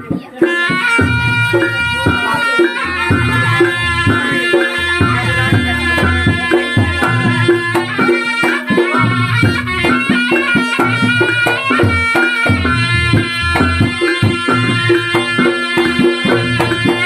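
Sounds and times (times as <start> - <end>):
hand drum strokes: 0.0 - 17.0
reed-like melody: 0.0 - 17.0
deep bass pattern: 1.1 - 7.9.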